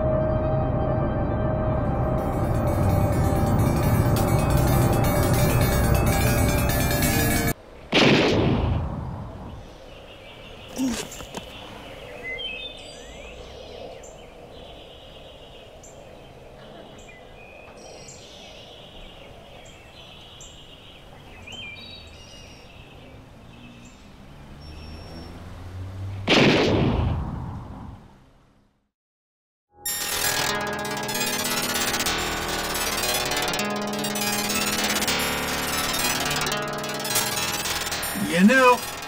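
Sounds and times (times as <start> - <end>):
gunshot with echo: 7.9 - 8.9, 26.3 - 27.2
birds chirping: 9.0 - 26.2, 32.8 - 39.0.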